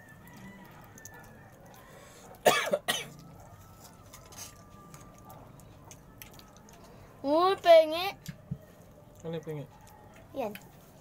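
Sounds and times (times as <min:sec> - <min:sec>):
person coughing: 0:02.4 - 0:03.2.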